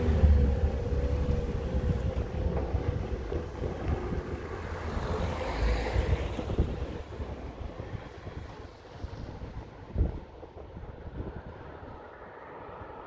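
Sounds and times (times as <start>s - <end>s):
van engine pulling away: 0.0s - 7.0s
wind buffeting microphone: 0.0s - 13.0s.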